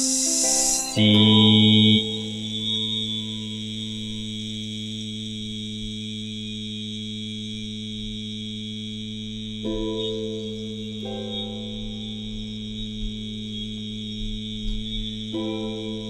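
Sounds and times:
higher synth notes: 0.0s - 4.2s, 9.7s - 13.5s
faint high hiss: 0.0s - 4.7s
held low drone chord: 0.0s - 16.0s.

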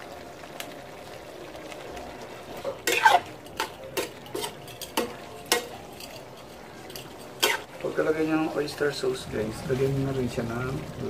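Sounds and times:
low sizzle from pan: 0.0s - 11.0s
utensil scraping and knocking pan: 2.7s - 7.7s.

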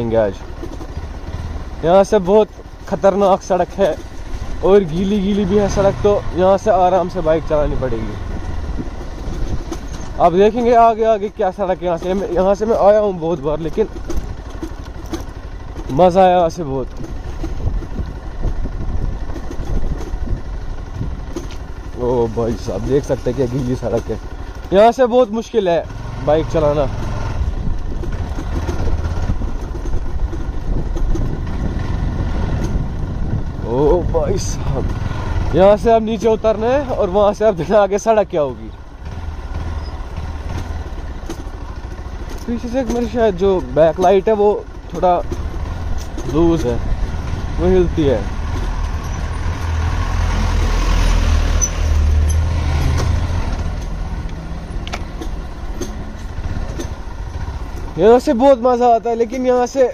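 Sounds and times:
motorcycle engine running: 0.0s - 59.9s
faint clicks and rattles: 8.8s - 25.8s, 26.5s - 31.9s, 34.3s - 49.9s, 51.6s - 59.9s
pickup truck engine passing: 46.6s - 58.8s.

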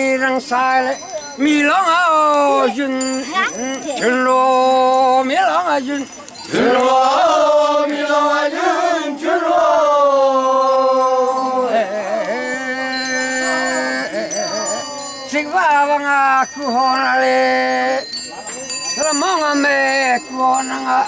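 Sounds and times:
men chanting together: 6.5s - 16.0s.

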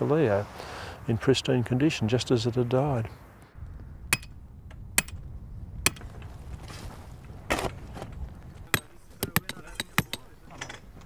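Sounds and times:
hammering steel stake: 4.1s - 4.4s, 5.0s - 5.2s, 5.8s - 6.1s, 8.6s - 11.0s.

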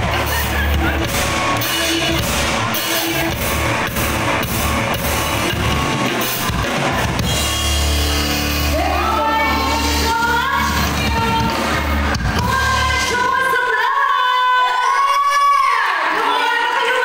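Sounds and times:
drum kit beating: 0.0s - 13.4s
live band dance music: 0.0s - 17.0s
woman singing: 8.8s - 11.8s.

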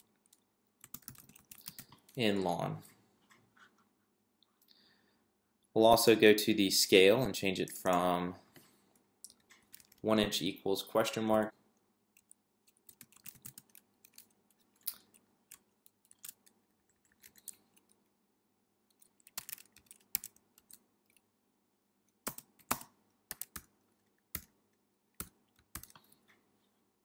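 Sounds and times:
keyboard typing: 0.1s - 2.2s, 9.4s - 10.0s, 12.2s - 18.0s, 18.9s - 21.2s, 22.1s - 24.6s, 25.2s - 26.2s.

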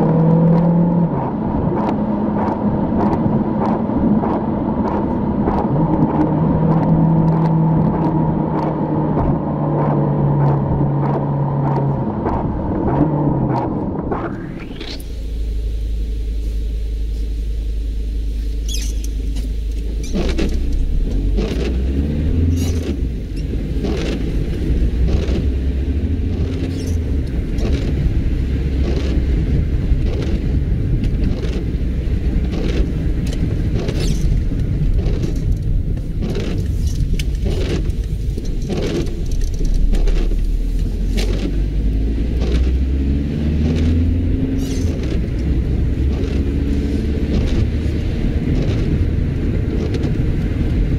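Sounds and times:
car engine and road rumble: 0.0s - 50.9s
windscreen wipers sweeping: 0.0s - 50.9s.

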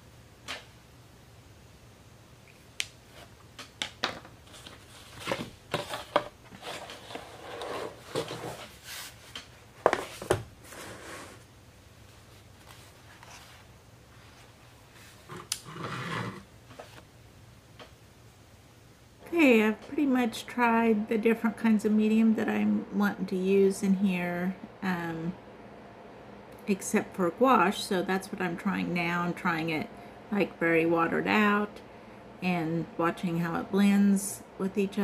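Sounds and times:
paper rustling and sliding: 4.4s - 11.5s.

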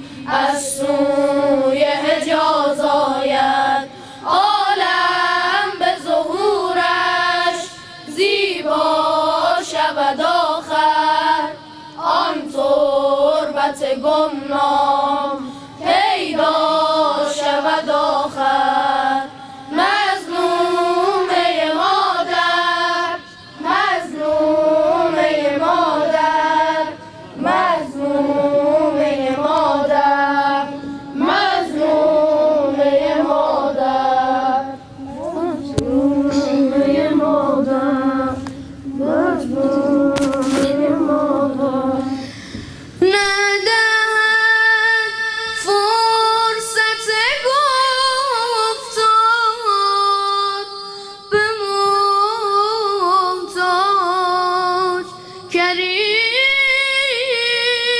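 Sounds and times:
boys' choir singing: 0.0s - 42.2s.

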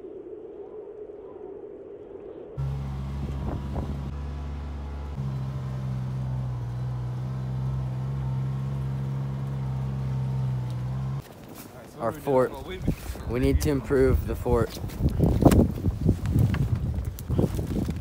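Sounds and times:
off-road vehicle engine droning: 2.6s - 11.2s.

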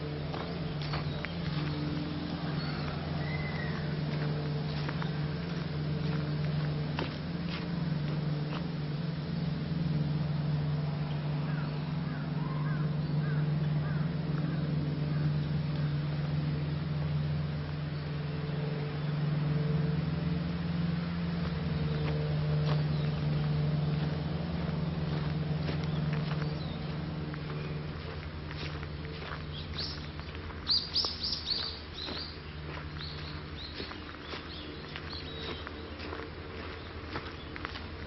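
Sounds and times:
footsteps on leafy dirt path: 0.0s - 38.0s
low machine hum: 0.0s - 38.0s
bird chirping: 29.2s - 37.8s.

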